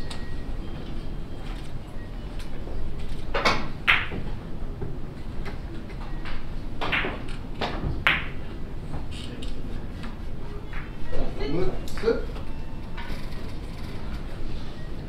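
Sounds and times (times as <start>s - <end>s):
billiard balls clicking: 3.2s - 4.3s
cue tip striking ball: 3.4s - 4.4s, 6.8s - 8.5s.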